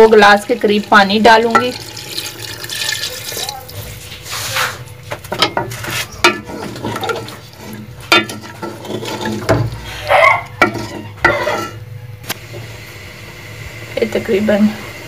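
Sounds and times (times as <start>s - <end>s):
liquid sloshing: 1.3s - 4.8s, 5.8s - 9.8s
spoon knocking and scraping pot: 1.5s - 1.8s, 5.2s - 11.8s.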